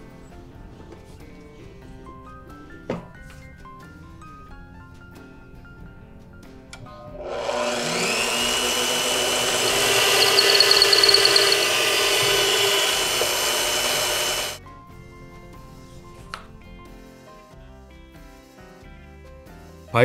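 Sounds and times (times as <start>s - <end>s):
drill press motor: 7.0s - 14.6s
drill bit boring into wood: 7.2s - 14.6s.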